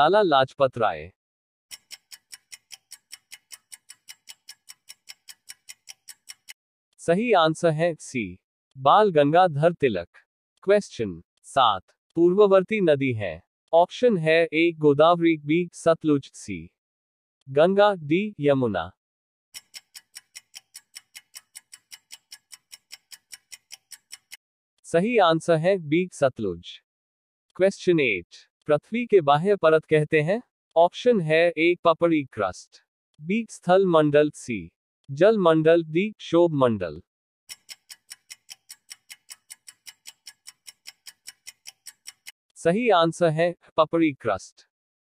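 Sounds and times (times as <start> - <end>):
clock ticking: 1.7 - 6.6, 19.6 - 24.4, 37.5 - 42.4.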